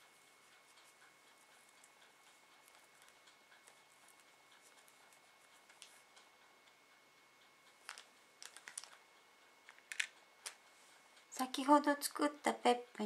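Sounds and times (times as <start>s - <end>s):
fingers handling thin wire: 7.7s - 9.0s, 9.7s - 10.7s.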